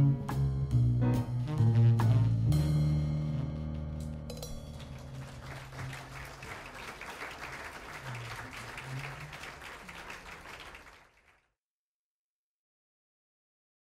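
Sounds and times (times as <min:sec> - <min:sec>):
jazz band final notes: 0:00.0 - 0:06.6
audience applauding: 0:04.7 - 0:11.5.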